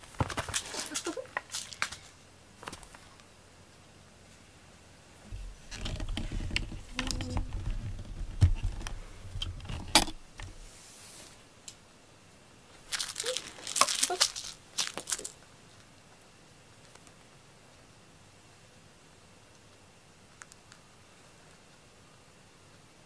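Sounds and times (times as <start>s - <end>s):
toy rustling and crinkling: 0.1s - 3.1s, 12.7s - 15.5s
paw thumps and scrabbling: 5.2s - 10.6s.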